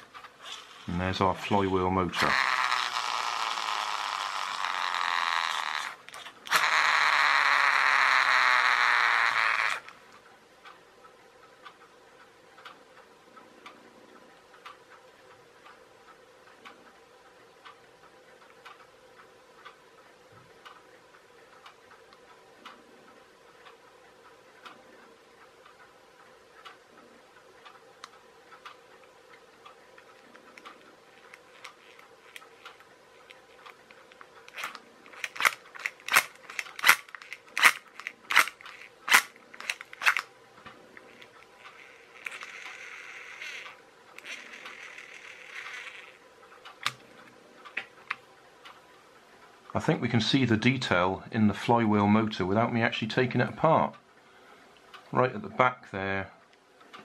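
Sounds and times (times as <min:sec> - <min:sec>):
low steady hum: 0:00.0 - 0:57.0
fingers handling plastic toy car: 0:34.5 - 0:40.3.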